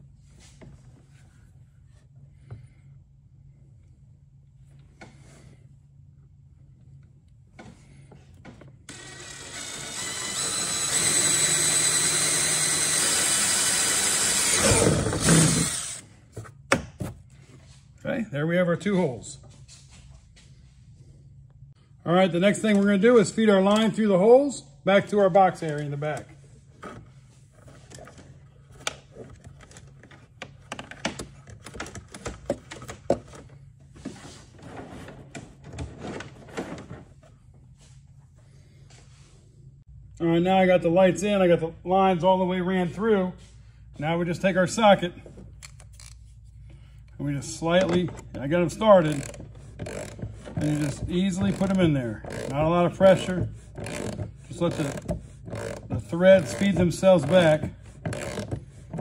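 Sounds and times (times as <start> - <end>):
drill boring through plastic: 8.9 - 16.0, 48.9 - 59.0.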